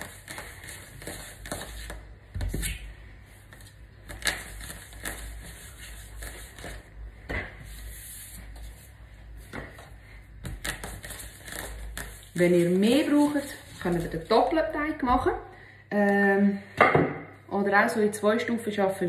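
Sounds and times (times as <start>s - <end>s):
hands rubbing dough: 0.0s - 14.6s.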